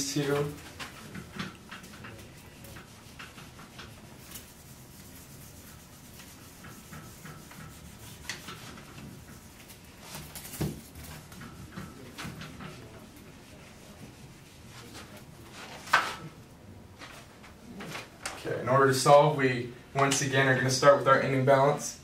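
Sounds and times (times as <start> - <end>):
eraser rubbing on whiteboard: 0.0 - 16.2.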